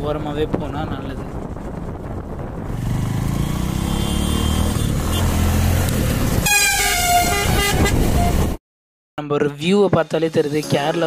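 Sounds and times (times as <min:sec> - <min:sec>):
wind and road rumble: 0:00.0 - 0:08.6
vehicle horn: 0:03.8 - 0:05.4, 0:06.4 - 0:08.6.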